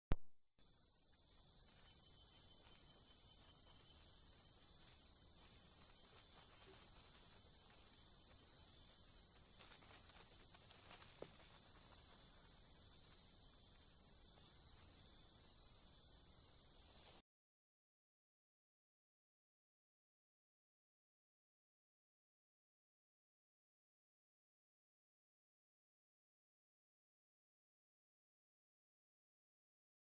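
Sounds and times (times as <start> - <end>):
faint ticks: 0.6 - 17.2
insect chirps: 0.6 - 17.2
night insects chorus: 0.6 - 17.2.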